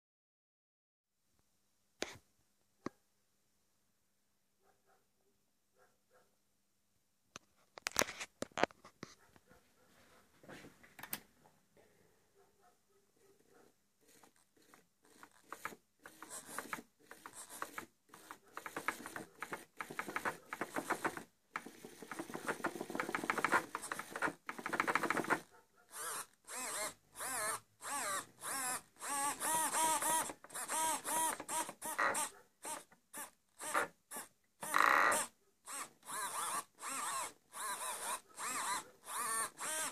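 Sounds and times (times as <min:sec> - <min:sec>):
servos whirring: 0:14.0 - 0:39.9.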